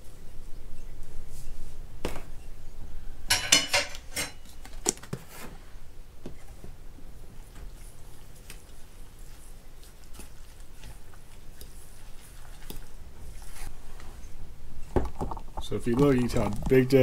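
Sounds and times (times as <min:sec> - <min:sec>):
metal cup clinking against bowl: 0:03.3 - 0:04.4.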